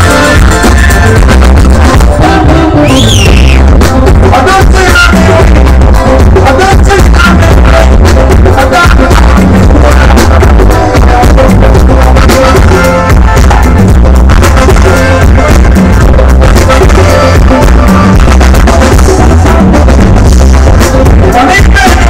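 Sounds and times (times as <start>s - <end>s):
drums: 0.0s - 22.0s
heavy bass line: 0.0s - 22.0s
live band music: 0.0s - 22.0s.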